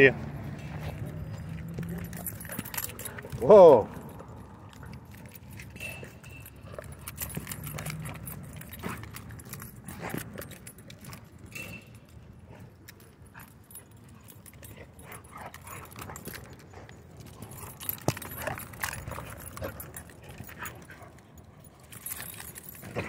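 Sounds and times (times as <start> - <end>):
collar tags jingling: 0.0 - 23.0
paws scuffling in dirt: 0.2 - 3.5.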